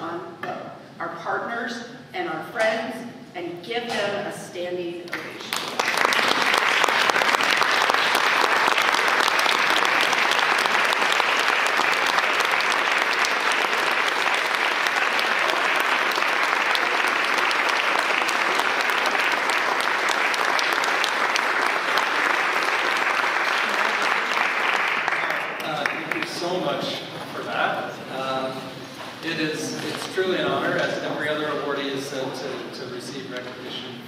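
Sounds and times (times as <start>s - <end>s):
audience applauding: 5.2s - 26.8s.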